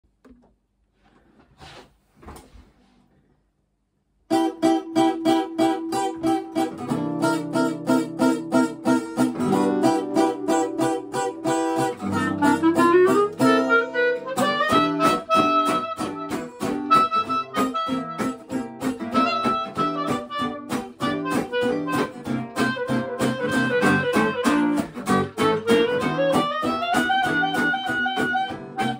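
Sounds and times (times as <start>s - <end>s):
acoustic guitars strumming: 4.3s - 28.9s
clarinet playing: 4.3s - 28.9s.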